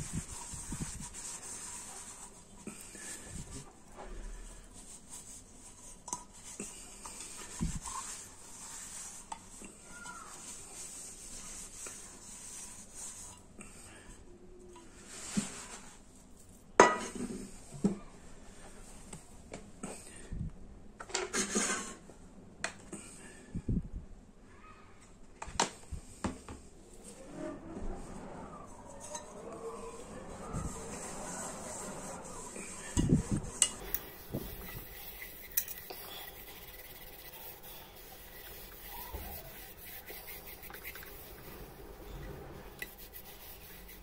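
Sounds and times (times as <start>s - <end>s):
cloth scrubbing copper bowl: 0.0s - 3.6s, 29.1s - 44.0s.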